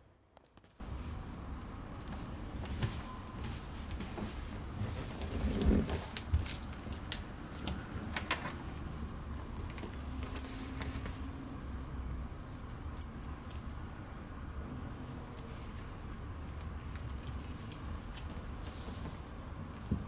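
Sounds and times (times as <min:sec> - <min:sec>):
metal collar clinks and jingling: 0:09.1 - 0:11.7, 0:12.4 - 0:14.4.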